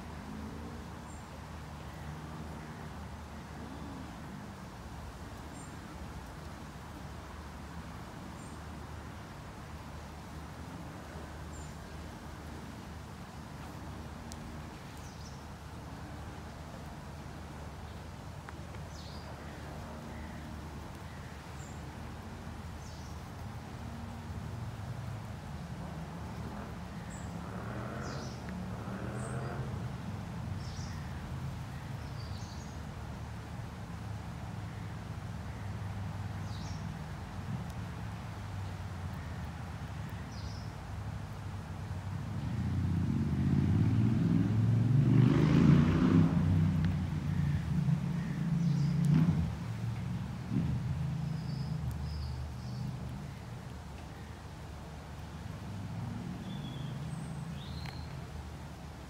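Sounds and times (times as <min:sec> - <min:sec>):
motor vehicle engine passing: 0:25.8 - 0:30.7, 0:42.3 - 0:53.0
low outdoor rumble: 0:40.9 - 0:59.0.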